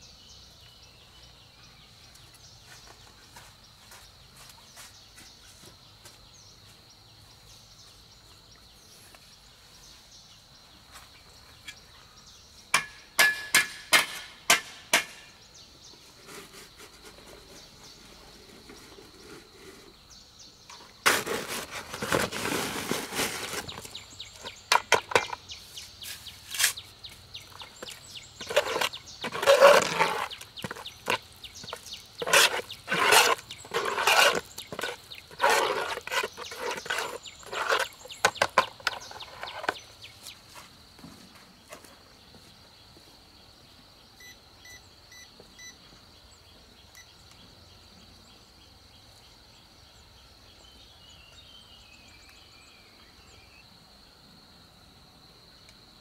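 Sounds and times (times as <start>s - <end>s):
scraping: 20.7s - 25.4s, 27.5s - 39.9s.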